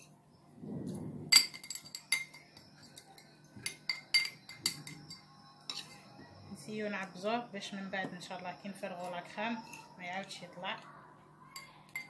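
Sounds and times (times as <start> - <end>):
glass tumblers clinking: 1.3 - 6.0.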